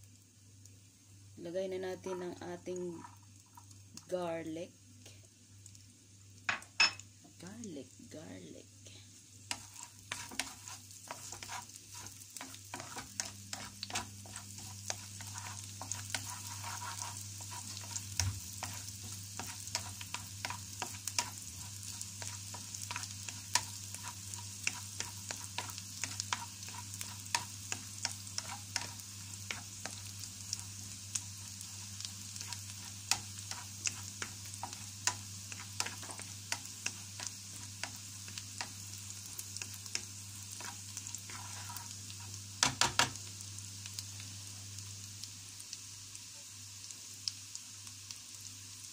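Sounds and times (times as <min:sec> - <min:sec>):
garlic sizzling in oil: 0:00.0 - 0:48.9
spatula striking pan: 0:42.6 - 0:43.2.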